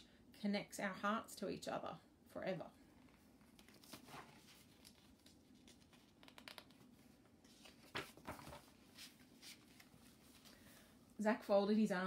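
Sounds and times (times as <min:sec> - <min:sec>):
book pages turning: 0:02.9 - 0:10.6
page swishes: 0:07.4 - 0:10.5.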